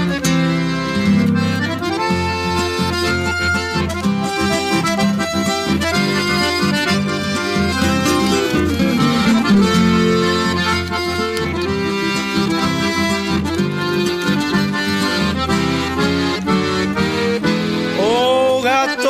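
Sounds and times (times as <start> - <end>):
accordion melody: 0.0 - 19.0
guitar accompaniment: 0.0 - 19.0.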